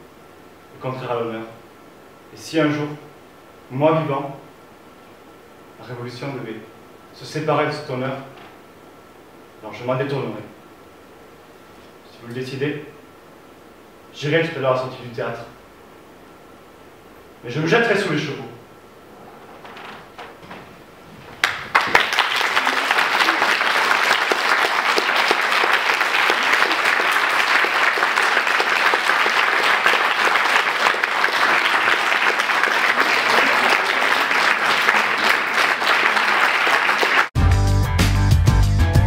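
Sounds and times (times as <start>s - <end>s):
audience applauding: 21.3s - 37.4s.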